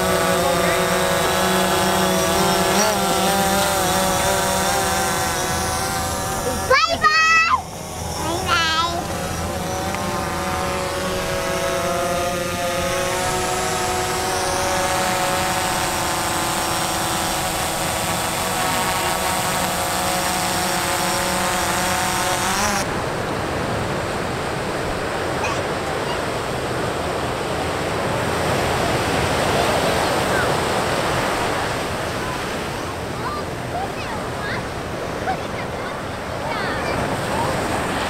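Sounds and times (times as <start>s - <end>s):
drone propellers whining: 0.0s - 38.0s
surf breaking on shore: 10.3s - 38.0s.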